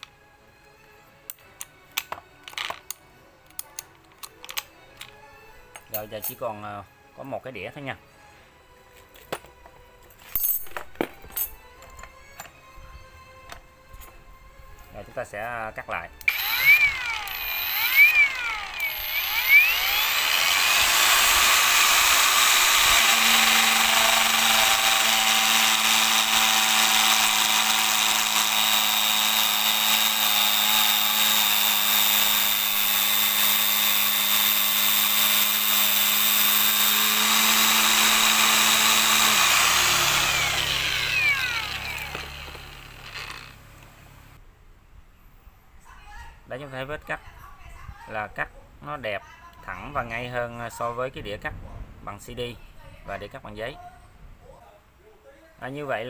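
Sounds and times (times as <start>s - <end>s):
angle grinder cutting wood: 16.2s - 43.7s.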